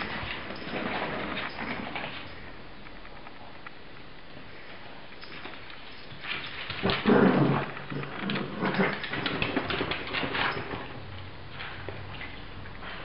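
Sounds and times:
dogs growling: 6.7 - 10.8.

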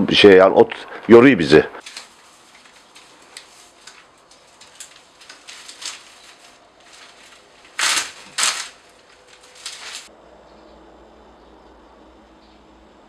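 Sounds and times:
dry straw rustling and crackling: 1.8 - 10.1
straw swishes: 1.8 - 10.1.

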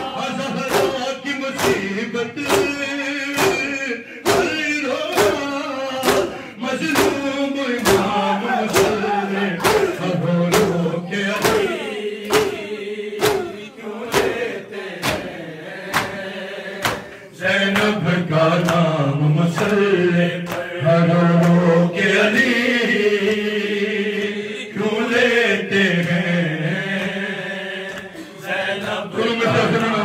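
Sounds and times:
chest striking rhythm: 0.0 - 15.3
men chanting a lament: 0.0 - 30.0.

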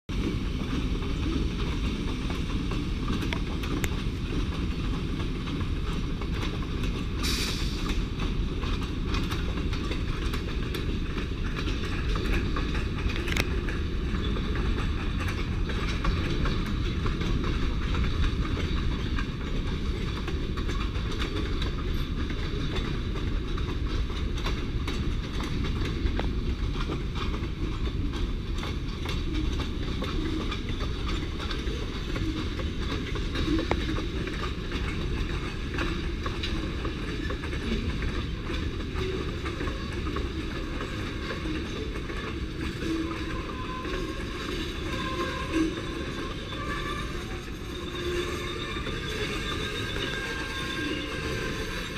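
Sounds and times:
freight train wheels rumbling: 0.1 - 51.9.

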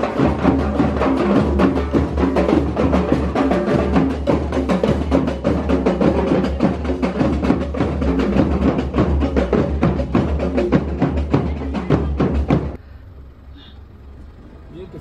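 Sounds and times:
percussion beat: 0.0 - 12.8
bass: 0.0 - 15.0.

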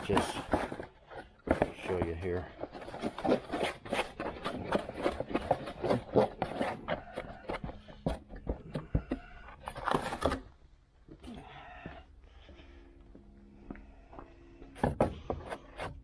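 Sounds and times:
plastic spreader scraping filler: 0.0 - 10.4.

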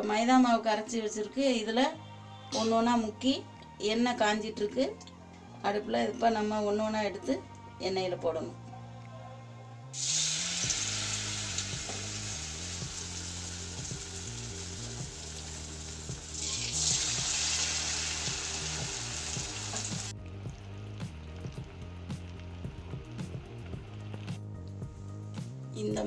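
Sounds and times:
deep-frying sizzle in oil: 10.0 - 24.3.

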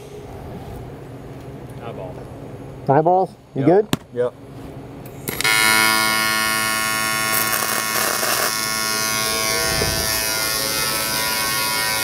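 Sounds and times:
welding arc buzzing: 5.3 - 12.0.

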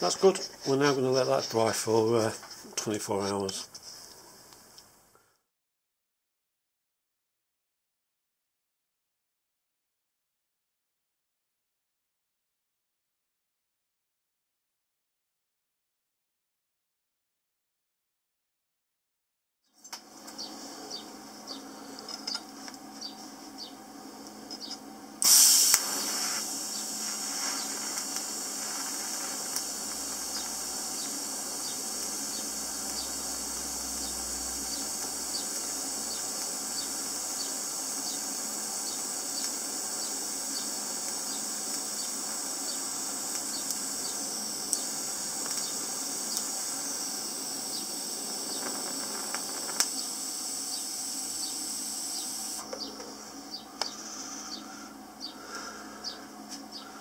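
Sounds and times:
welding arc hissing: 0.0 - 2.4, 25.2 - 56.9.

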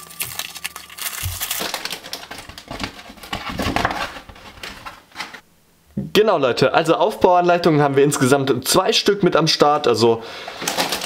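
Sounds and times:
paper envelope tearing: 0.0 - 4.9, 10.6 - 11.0
paper rustling and crinkling: 0.0 - 5.4, 10.4 - 11.0
plastic bags crackling: 0.0 - 5.4, 10.4 - 11.0.

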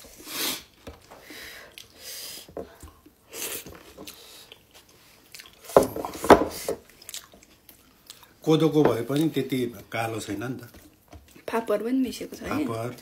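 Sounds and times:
chewing and mouth noises: 1.7 - 2.0, 2.8 - 5.8, 6.8 - 8.4.

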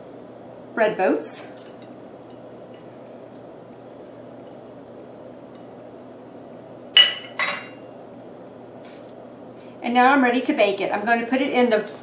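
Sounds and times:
metal cup clinking on stone: 7.0 - 7.8.

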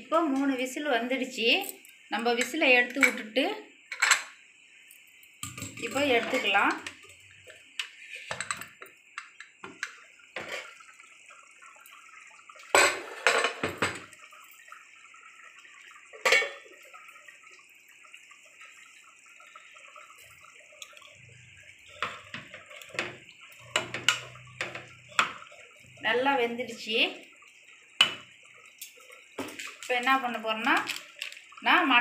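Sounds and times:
curry bubbling: 4.6 - 32.0
metal pressure cooker lid clanking: 16.3 - 16.6.

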